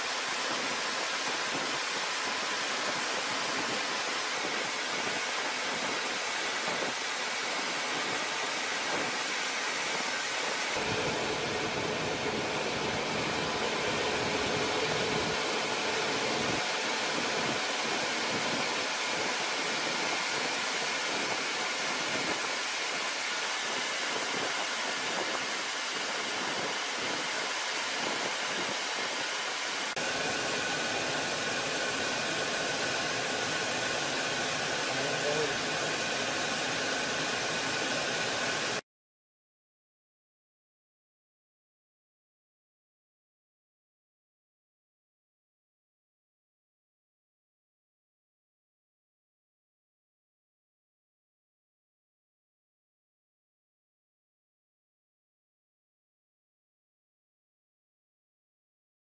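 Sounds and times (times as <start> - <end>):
aircraft engine and airflow noise: 10.8 - 22.4.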